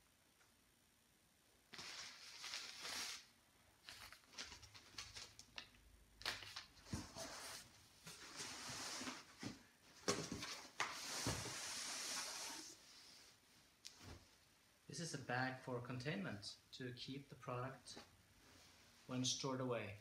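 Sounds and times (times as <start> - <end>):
packaging rustling and crinkling: 1.7 - 12.7.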